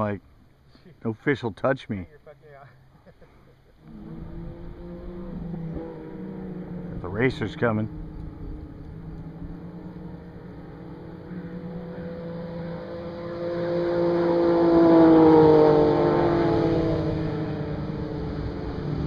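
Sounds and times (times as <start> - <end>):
fast vehicle engine passing by: 3.8 - 19.0.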